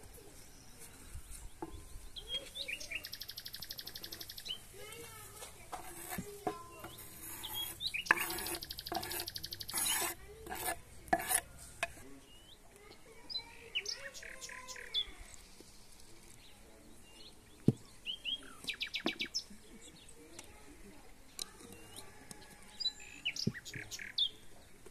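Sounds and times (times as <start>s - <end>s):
small birds chirping: 0.0s - 24.9s
knife scraping cutting board: 5.7s - 12.0s.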